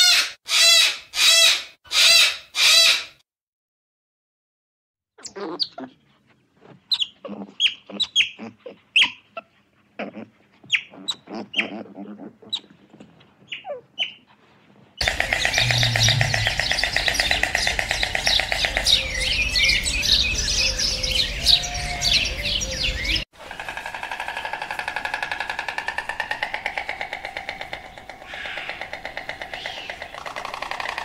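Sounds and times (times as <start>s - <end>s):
small birds chirping: 5.2s - 9.5s, 15.0s - 23.3s
rapidly pulsing trill: 15.0s - 18.6s.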